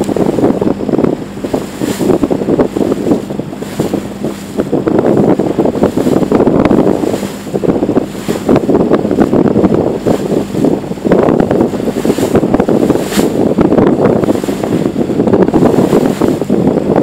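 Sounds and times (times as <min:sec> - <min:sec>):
boat through choppy water: 0:00.0 - 0:17.0
faint engine hum: 0:00.0 - 0:17.0
wind buffeting microphone: 0:00.0 - 0:17.0.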